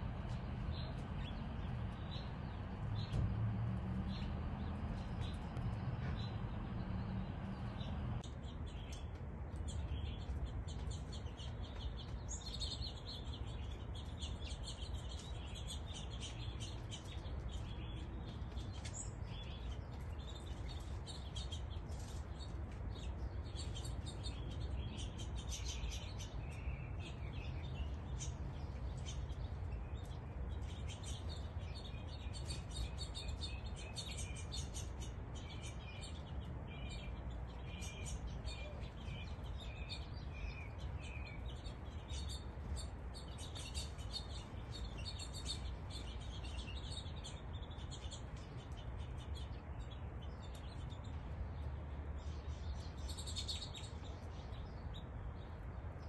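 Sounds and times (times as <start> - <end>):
low background rumble: 0.0 - 12.3
songbirds chirping: 0.0 - 56.0.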